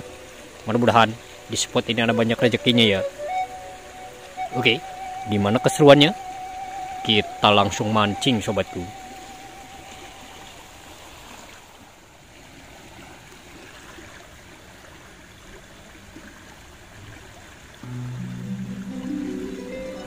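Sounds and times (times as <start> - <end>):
background music: 0.0 - 9.1, 17.8 - 20.0
river rushing: 0.0 - 20.0.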